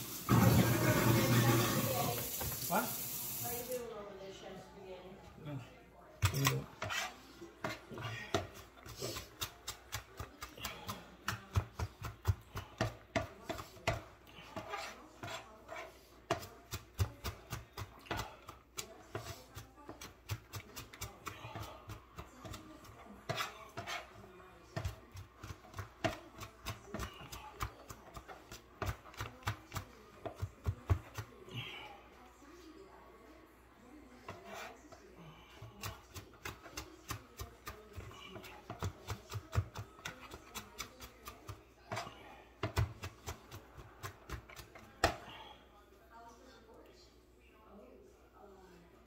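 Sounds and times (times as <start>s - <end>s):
knife chopping on cutting board: 6.2s - 24.1s, 24.7s - 31.3s, 35.6s - 45.2s.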